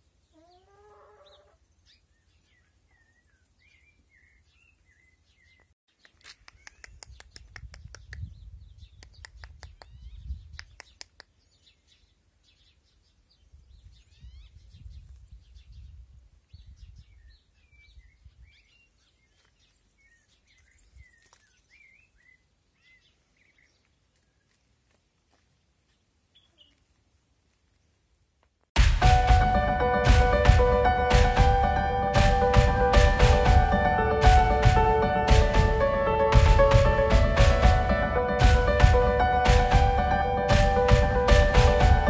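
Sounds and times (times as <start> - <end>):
small birds chirping: 0.0 - 28.0
low rumbling noise: 28.8 - 42.0.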